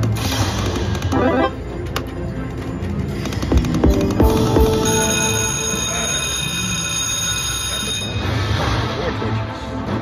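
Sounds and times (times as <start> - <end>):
slot machine game music: 1.0 - 8.6.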